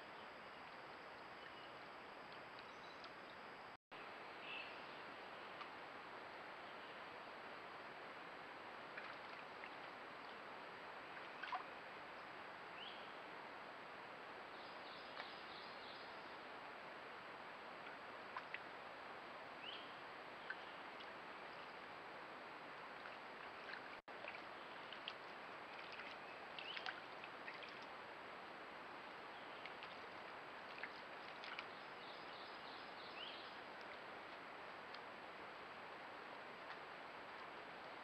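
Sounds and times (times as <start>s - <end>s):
creek trickling: 0.1s - 13.6s, 14.3s - 38.0s
soft ticks and rustles: 8.9s - 10.4s, 17.8s - 18.8s, 22.7s - 28.0s, 28.9s - 31.8s, 33.5s - 35.4s, 36.2s - 38.0s.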